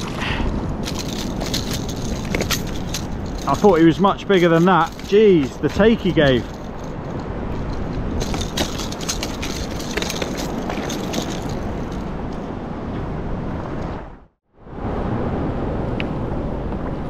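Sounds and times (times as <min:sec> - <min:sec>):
small clicks and rattles: 0:00.8 - 0:12.1.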